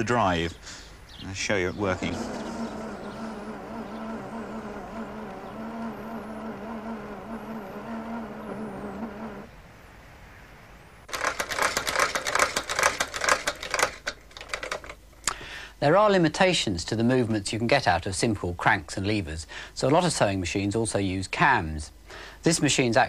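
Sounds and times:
drive motor running: 0:01.7 - 0:09.5
rapid irregular clattering: 0:11.1 - 0:15.0.

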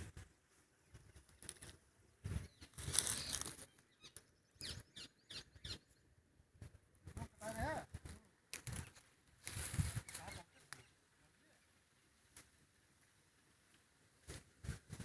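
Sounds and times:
leaves rustling: 0:00.4 - 0:04.0, 0:07.3 - 0:15.0.

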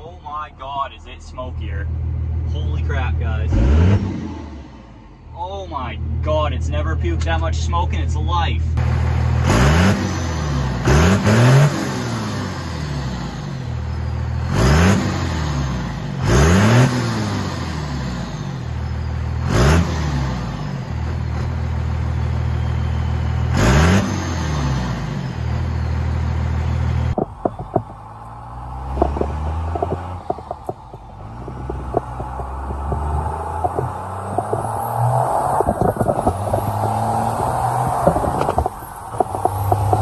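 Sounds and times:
diesel engine revving: 0:00.0 - 0:07.3, 0:08.6 - 0:40.0
engine heard inside cab: 0:08.6 - 0:40.0
scattered clicks: 0:38.0 - 0:40.0.

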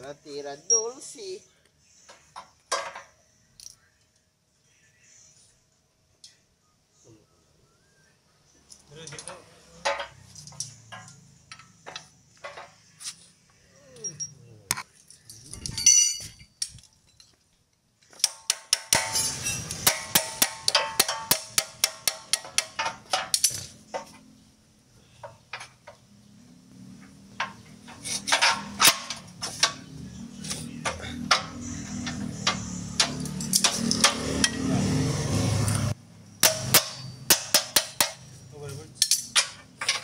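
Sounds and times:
hammer striking metal: 0:18.2 - 0:23.6, 0:30.8 - 0:34.7, 0:36.4 - 0:38.4.

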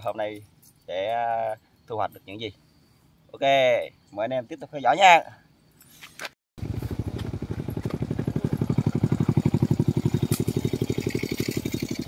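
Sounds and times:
small engine running: 0:06.6 - 0:12.0.

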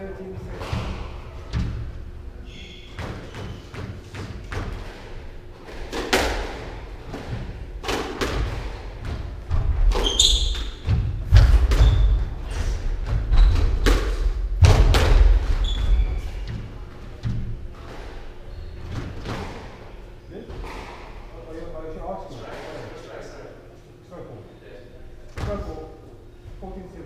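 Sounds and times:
squash ball hitting rackets and walls: 0:00.4 - 0:21.2
shoes squeaking: 0:02.4 - 0:06.1, 0:09.8 - 0:10.9, 0:11.7 - 0:14.0, 0:15.4 - 0:19.8.

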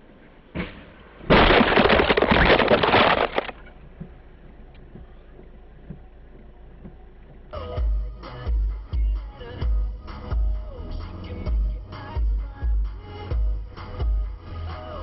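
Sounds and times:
car crash impact: 0:00.5 - 0:03.8.

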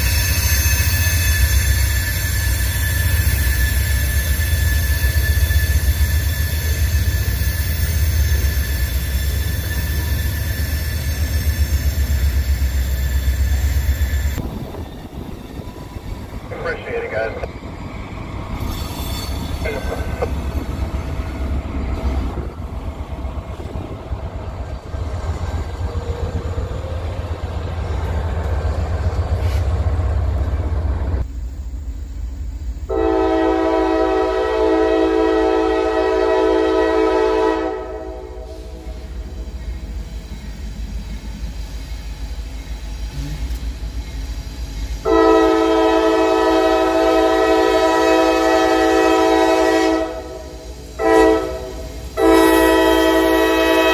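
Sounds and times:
locomotive air horn blasts: 0:32.9 - 0:38.8, 0:45.0 - 0:53.9.

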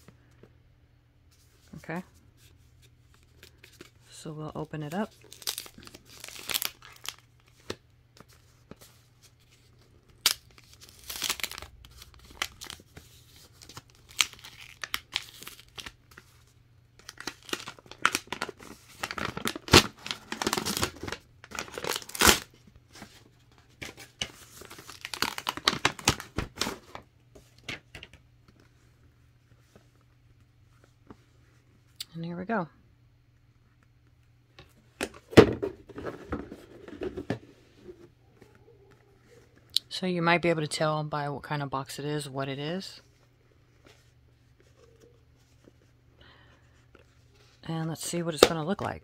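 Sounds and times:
wrapping paper rustling and tearing: 0:03.1 - 0:27.0.

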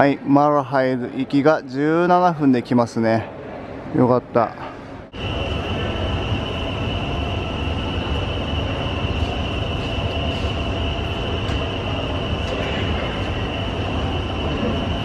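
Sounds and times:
electric train low rumble: 0:04.6 - 0:15.0
high-pitched whine: 0:04.6 - 0:15.0.

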